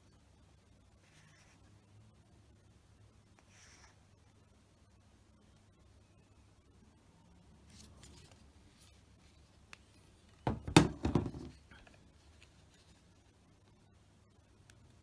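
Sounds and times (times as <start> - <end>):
faint rustling of vinyl strip: 0.0 - 15.0
racket frame knocking and rubbing: 10.4 - 11.6.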